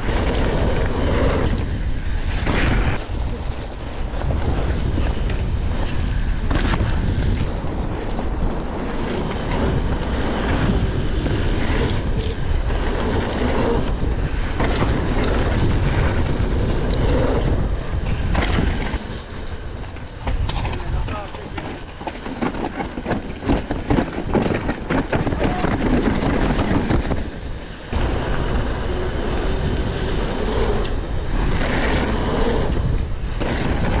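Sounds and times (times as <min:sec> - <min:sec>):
wind buffeting microphone: 0:00.0 - 0:34.0
bike knocks and rattles: 0:04.1 - 0:19.0, 0:19.9 - 0:28.6, 0:30.8 - 0:34.0.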